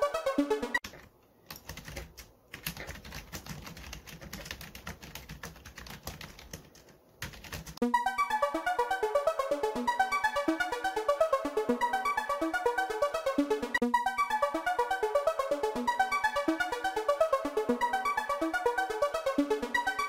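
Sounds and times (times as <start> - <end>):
music with repeating notes: 0.0 - 0.8, 7.8 - 20.0
fast keyboard typing: 0.8 - 7.8.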